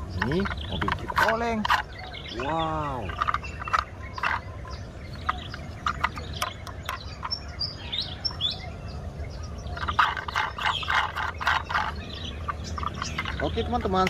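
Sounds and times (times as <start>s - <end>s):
toy truck clicking and rustling: 0.0s - 2.0s, 3.0s - 4.6s, 5.2s - 7.4s, 9.8s - 14.0s
birds chirping: 0.0s - 14.0s.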